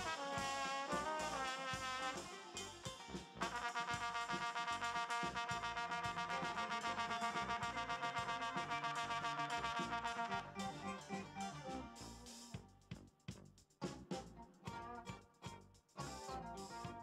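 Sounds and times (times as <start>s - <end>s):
brass high note held: 0.0s - 12.6s.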